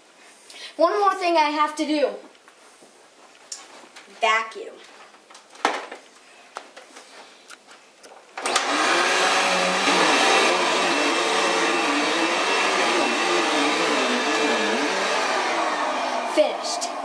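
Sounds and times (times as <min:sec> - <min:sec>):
vacuum cleaner motor running: 0:08.4 - 0:17.0.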